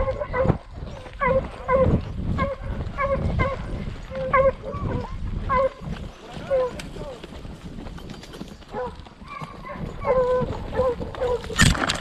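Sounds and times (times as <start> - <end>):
dogs yelping: 0.0 - 5.9, 8.7 - 11.6
horse hoofbeats: 0.0 - 12.0.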